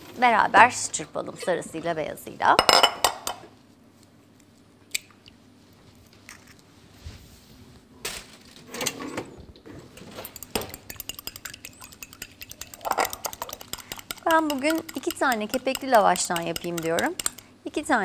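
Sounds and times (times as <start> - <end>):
fork clinking against glass bowl: 10.0 - 17.5.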